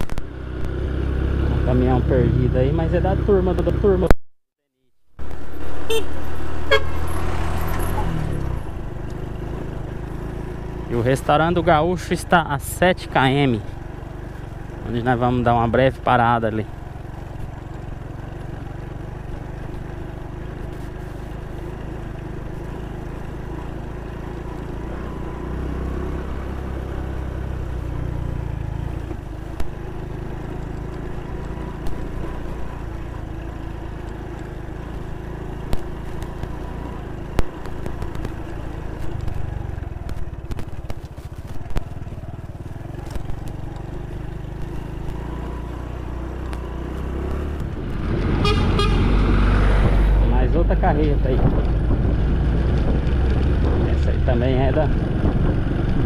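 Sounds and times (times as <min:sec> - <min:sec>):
motorcycle engine running: 0:00.0 - 0:04.2, 0:05.2 - 0:56.0
knocks and rattles over bumps: 0:28.5 - 0:48.4, 0:50.9 - 0:54.1.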